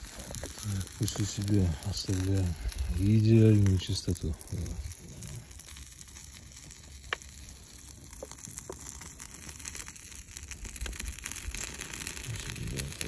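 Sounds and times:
faint steady hiss: 0:00.0 - 0:10.0
small fire crackling: 0:00.0 - 0:13.0
sharp pops: 0:07.0 - 0:07.4, 0:08.0 - 0:09.9.

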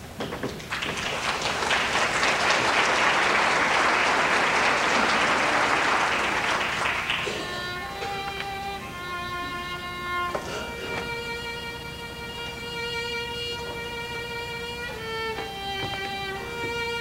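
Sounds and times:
audience applauding: 0:00.6 - 0:08.5
fiddle playing: 0:03.4 - 0:17.0.

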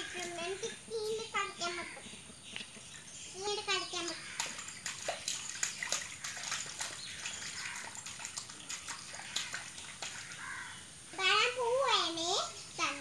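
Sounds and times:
bare feet splashing in puddle: 0:04.0 - 0:10.7.

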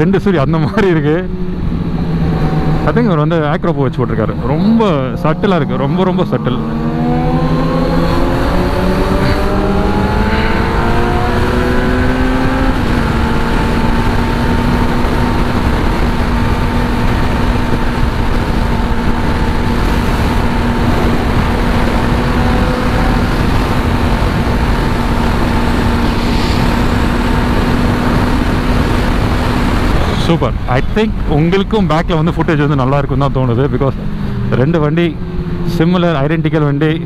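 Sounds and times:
motorcycle engine revving: 0:01.1 - 0:30.5
wind rush: 0:03.8 - 0:34.6.

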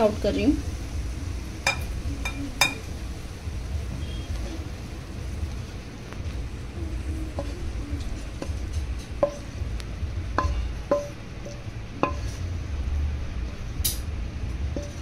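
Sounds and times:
steady low hum: 0:00.0 - 0:15.0
metal spoon tapping cooking pan: 0:01.6 - 0:02.9, 0:07.3 - 0:12.4, 0:14.7 - 0:15.0.

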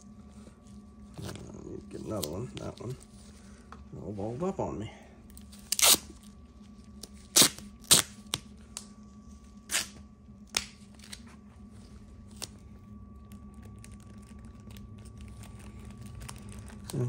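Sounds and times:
plastic bag crackling: 0:13.1 - 0:17.0.

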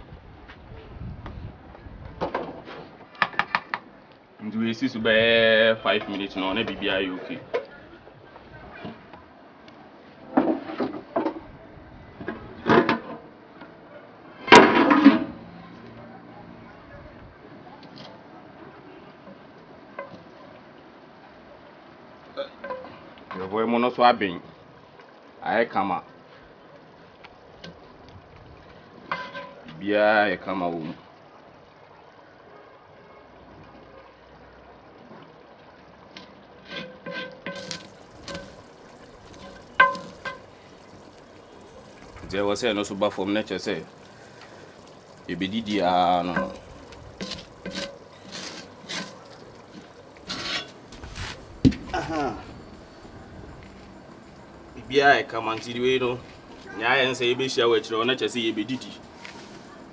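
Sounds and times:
metal pot lid clanking and scraping: 0:36.7 - 0:41.0, 0:46.1 - 0:51.4.

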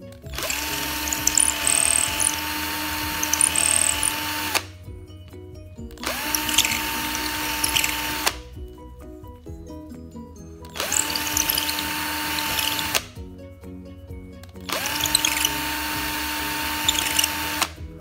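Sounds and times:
electric drill boring wood: 0:00.2 - 0:04.7, 0:06.0 - 0:08.4, 0:10.7 - 0:13.2, 0:14.7 - 0:17.8.

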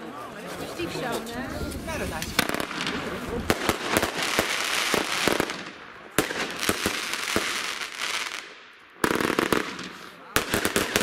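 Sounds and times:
fireworks crackling: 0:01.5 - 0:11.0
fireworks bangs: 0:01.9 - 0:11.0.

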